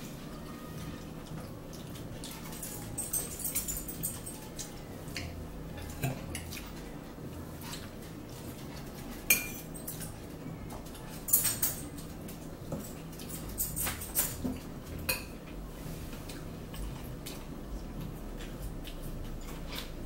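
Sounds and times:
metal fork clinking on plates: 2.5s - 5.3s, 9.3s - 10.2s, 11.2s - 15.4s.

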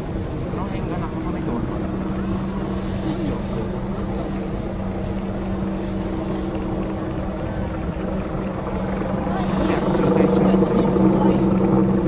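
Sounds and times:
mechanical drone with low hum: 0.0s - 12.0s
rough low rumble: 0.0s - 12.0s.

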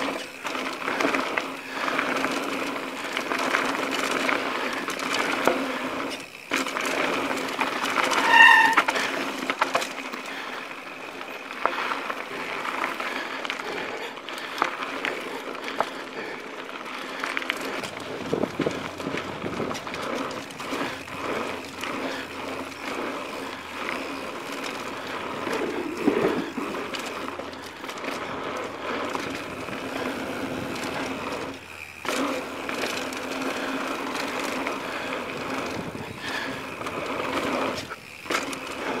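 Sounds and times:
bike clicks and rattles: 0.0s - 39.0s
bike tyre riding noise: 0.0s - 39.0s
pulsing high-pitched squeak: 8.0s - 9.1s.

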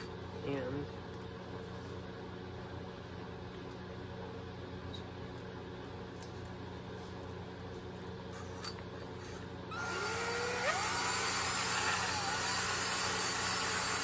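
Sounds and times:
low steady hum: 0.0s - 14.0s
cordless drill motor whine: 9.7s - 14.0s.

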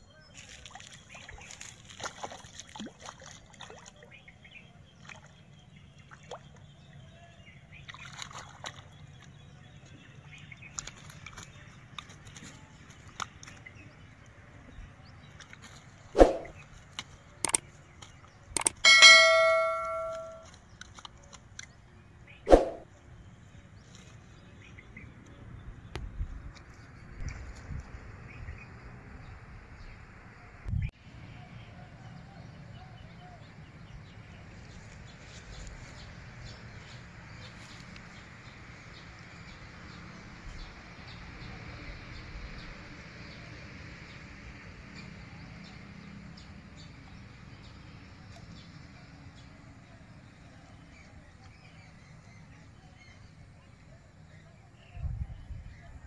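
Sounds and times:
metallic ding ringing: 18.6s - 20.5s.

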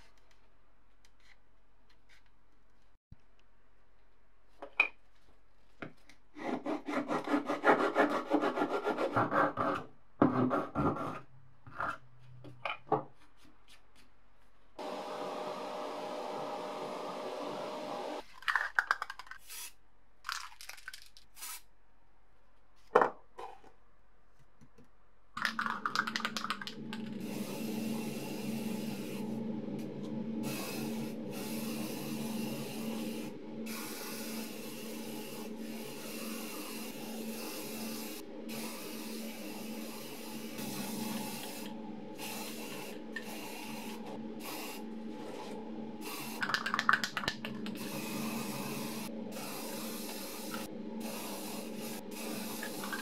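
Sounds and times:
motor hum: 26.2s - 46.5s, 47.4s - 53.0s
paint spray hissing: 30.4s - 44.8s, 46.0s - 47.1s, 47.7s - 53.0s.

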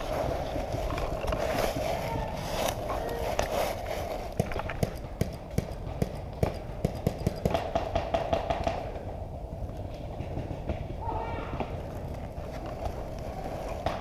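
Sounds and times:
paintball markers firing: 4.3s - 9.1s.

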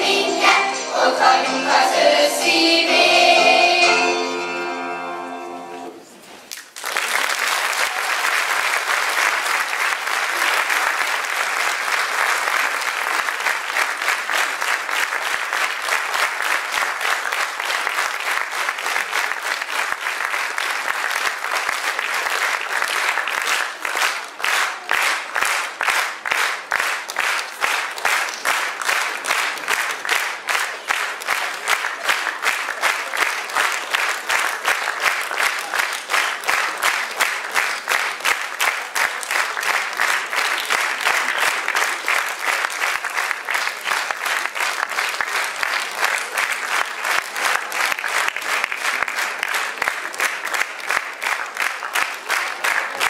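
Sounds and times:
choir singing: 0.0s - 5.9s
audience applause: 6.5s - 53.0s
rhythmic clapping: 6.5s - 53.0s.

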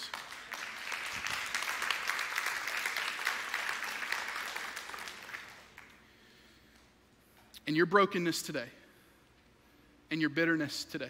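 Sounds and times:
congregation applauding: 0.0s - 6.1s.

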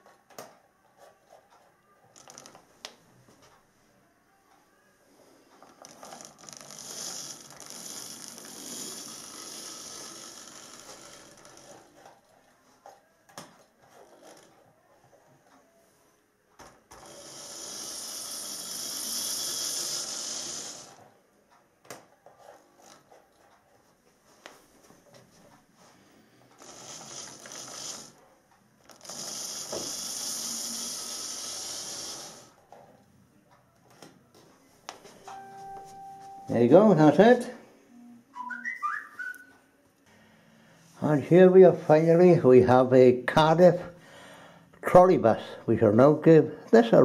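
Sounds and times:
wheels on rails: 5.6s - 12.4s, 17.0s - 21.1s
model train motor whirring: 5.8s - 12.1s, 17.0s - 21.0s, 26.6s - 28.2s, 28.9s - 32.6s.

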